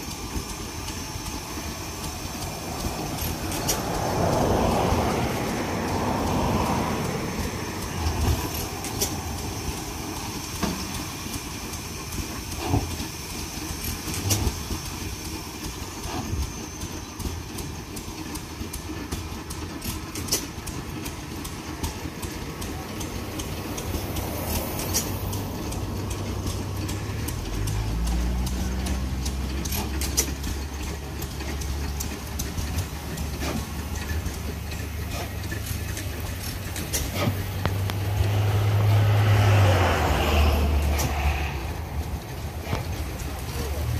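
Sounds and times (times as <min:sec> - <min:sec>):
low steady engine drone: 0:00.0 - 0:43.9
steam engine running: 0:00.0 - 0:43.9
steam hissing: 0:00.0 - 0:43.9
sharp clicks and knocks: 0:16.0 - 0:39.4.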